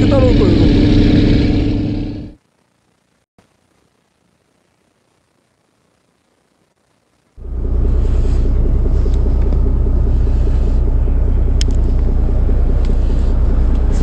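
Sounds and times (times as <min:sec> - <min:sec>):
boat engine running: 0:00.0 - 0:02.4, 0:07.4 - 0:14.0.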